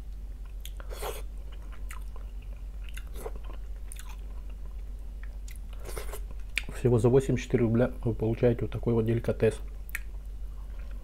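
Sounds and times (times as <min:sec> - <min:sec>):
person chewing and lip smacking: 0:00.1 - 0:06.7, 0:09.9 - 0:11.0.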